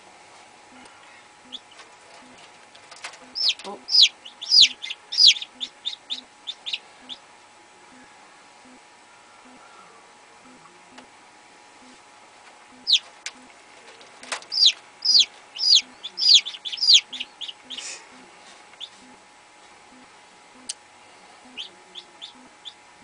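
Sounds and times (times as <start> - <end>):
chicks peeping: 1.0 - 7.3, 12.7 - 19.2, 21.4 - 22.9.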